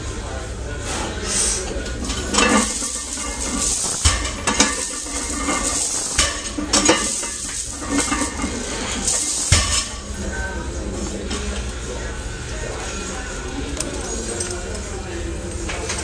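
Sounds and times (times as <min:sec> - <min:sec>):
lifting chains clinking and rattling: 0:02.2 - 0:10.0.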